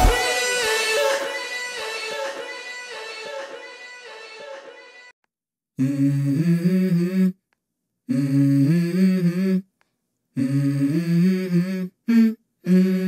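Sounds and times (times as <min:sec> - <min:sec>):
background song: 0:00.0 - 0:05.1
person humming: 0:05.8 - 0:07.4, 0:08.1 - 0:09.7, 0:10.4 - 0:13.0.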